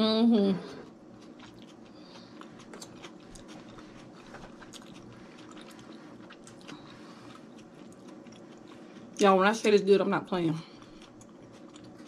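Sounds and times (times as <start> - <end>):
chewing mouth clicks and smacks: 1.2 - 9.2, 10.8 - 12.0.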